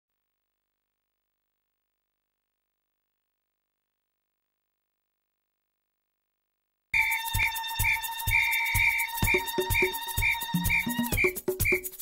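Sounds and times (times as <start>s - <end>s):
electronic music with beat: 7.0s - 12.0s.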